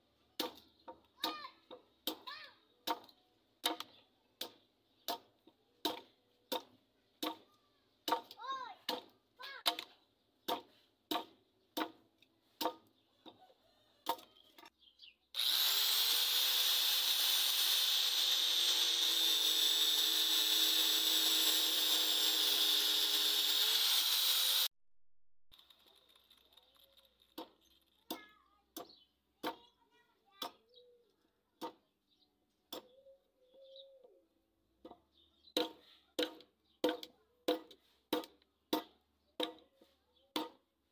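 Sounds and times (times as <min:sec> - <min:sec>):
angle grinder cutting wood: 0:15.4 - 0:24.7.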